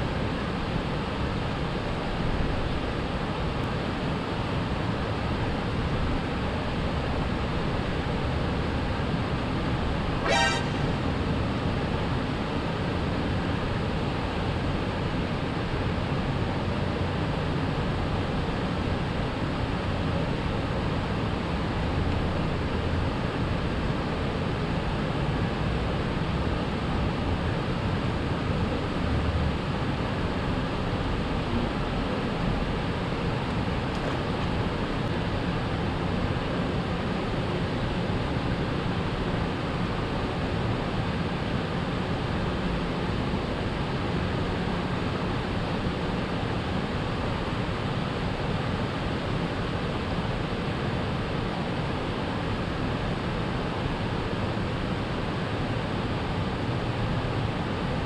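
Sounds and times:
vehicle horn toot: 0:10.2 - 0:11.0
traffic rushing overhead: 0:10.2 - 0:11.4.

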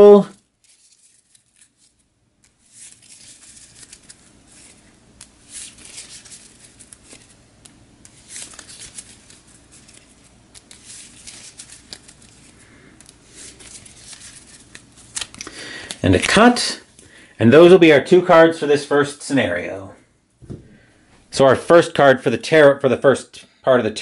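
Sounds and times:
cards being shuffled: 0:00.4 - 0:17.1.

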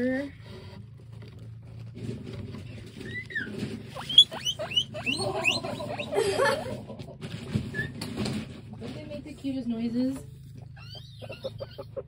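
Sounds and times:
guinea pigs squeaking: 0:02.4 - 0:12.0.

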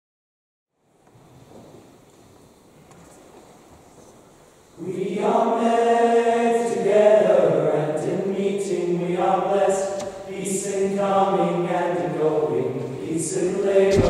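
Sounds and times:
boys' choir singing in harmony: 0:04.8 - 0:14.0.

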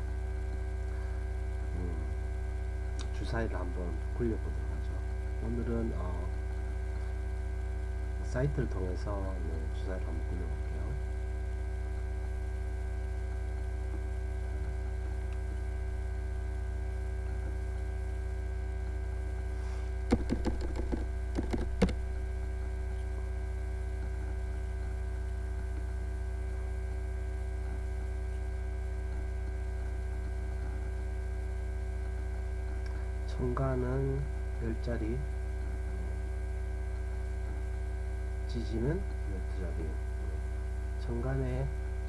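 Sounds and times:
electrical hum: 0:00.0 - 0:42.0
keyboard typing: 0:20.1 - 0:22.0.

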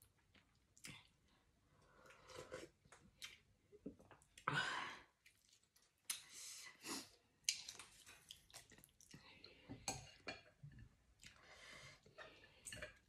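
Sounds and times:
person chewing: 0:05.2 - 0:06.3, 0:07.4 - 0:09.3.

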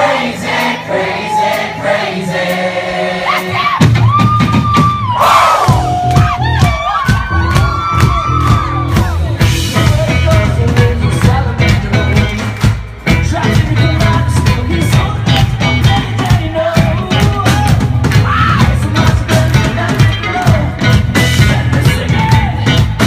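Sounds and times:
drums keeping a steady beat: 0:00.0 - 0:23.0
bass guitar: 0:03.2 - 0:23.0
electric guitar: 0:05.7 - 0:23.0.

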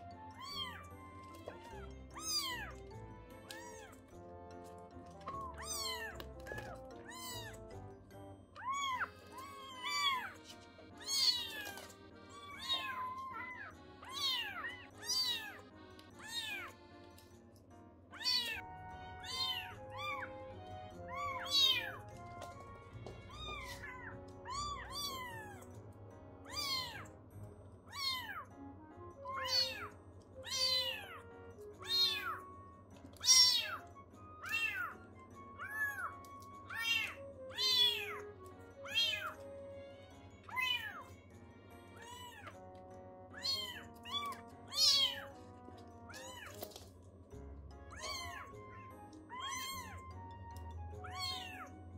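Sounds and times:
kittens meowing: 0:00.0 - 0:04.2, 0:05.2 - 0:07.8, 0:08.6 - 0:16.8, 0:18.1 - 0:25.8, 0:26.4 - 0:27.1, 0:27.9 - 0:28.5, 0:29.2 - 0:32.5, 0:33.1 - 0:39.6, 0:40.4 - 0:41.2, 0:41.9 - 0:42.7, 0:43.3 - 0:45.4, 0:46.1 - 0:46.8, 0:47.8 - 0:51.9
background music: 0:00.0 - 0:51.9.

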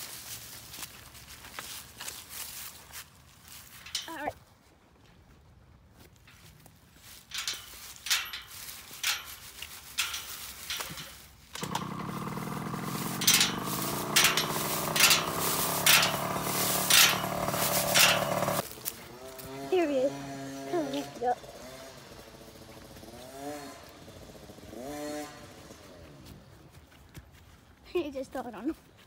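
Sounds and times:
footsteps crunching dry leaves: 0:00.0 - 0:04.2, 0:06.0 - 0:19.7
dirt bike engine running: 0:10.0 - 0:26.3.

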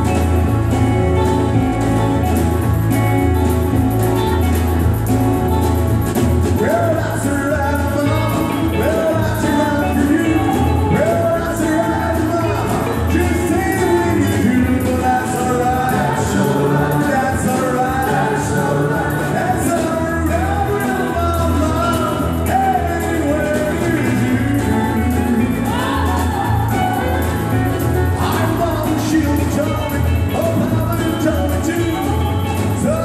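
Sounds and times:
country band playing: 0:00.0 - 0:33.0
man singing: 0:06.6 - 0:33.0.

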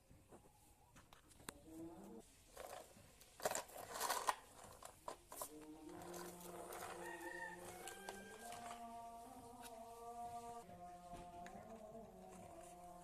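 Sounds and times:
plastic toys rustling: 0:02.2 - 0:09.7.

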